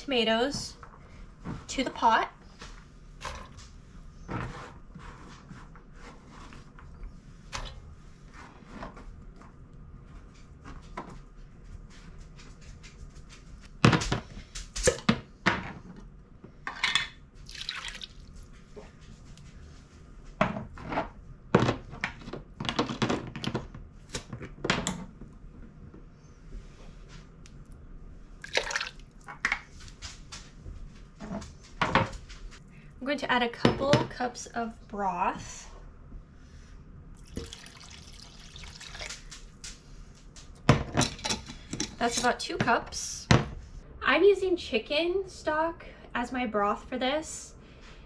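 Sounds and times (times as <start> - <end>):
wet plops and drips: 17.5 - 18.3, 28.4 - 29.2, 37.2 - 39.3.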